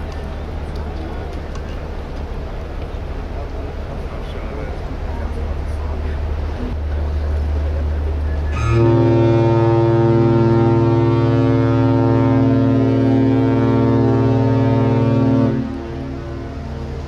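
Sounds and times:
deep ship horn blast: 8.1s - 17.0s.

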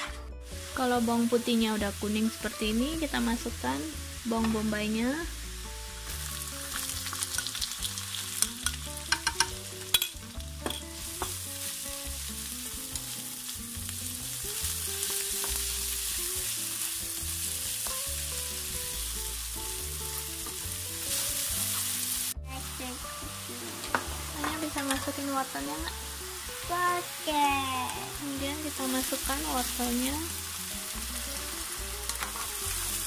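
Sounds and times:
onions sizzling in a wok: 0.0s - 33.0s.

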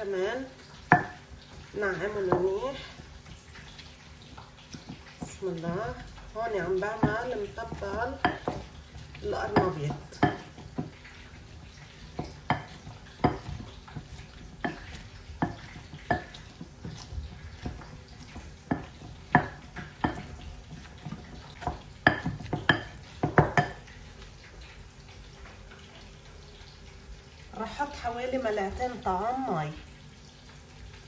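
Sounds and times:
wooden pestle pounding in glass bowl: 0.9s - 1.2s, 6.8s - 11.0s, 12.0s - 23.8s.

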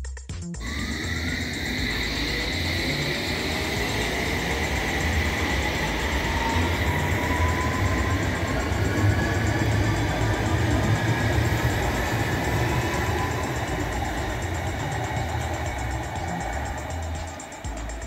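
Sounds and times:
electric motor whine: 0.6s - 18.0s
train rumble: 0.6s - 18.0s.

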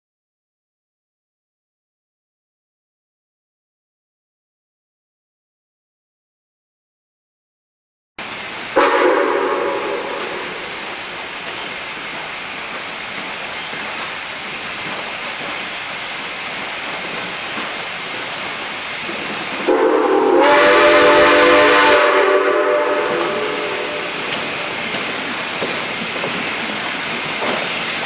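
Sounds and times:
steam whistle blast: 8.2s - 11.8s, 19.1s - 25.2s
steam locomotive hissing: 8.2s - 28.0s.

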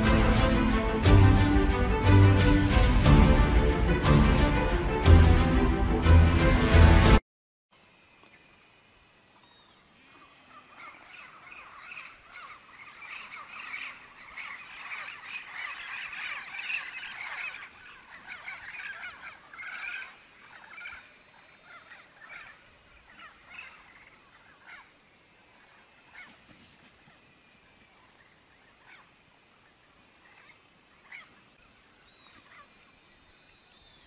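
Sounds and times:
flock of birds squawking: 10.1s - 27.1s, 28.0s - 29.1s, 30.2s - 31.4s.

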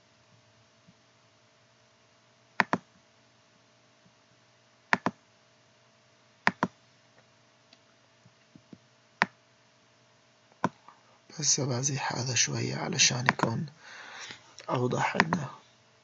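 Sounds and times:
computer mouse button clicking: 2.6s - 2.8s, 5.0s - 5.2s, 6.5s - 6.7s.

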